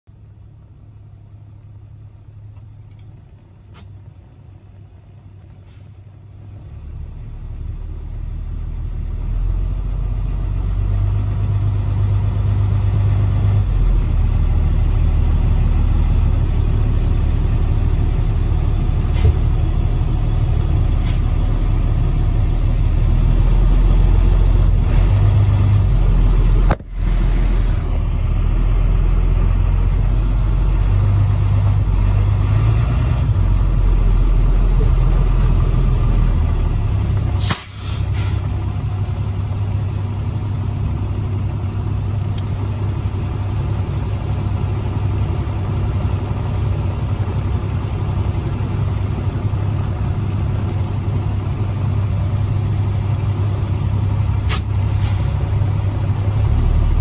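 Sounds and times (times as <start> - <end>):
heavy vehicle engine rumble: 0.1 - 57.0.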